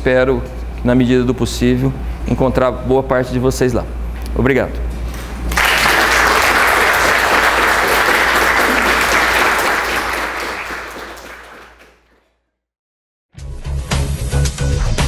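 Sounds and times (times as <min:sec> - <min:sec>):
small audience applauding: 0:05.5 - 0:12.3.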